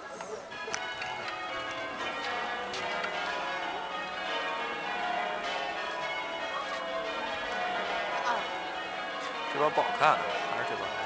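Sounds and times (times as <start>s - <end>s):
church bells pealing: 0.0s - 11.0s.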